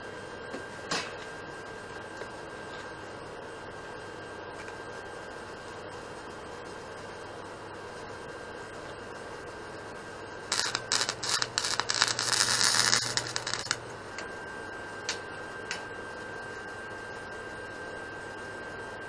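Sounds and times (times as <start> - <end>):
welder arc crackling: 10.4 - 14.3.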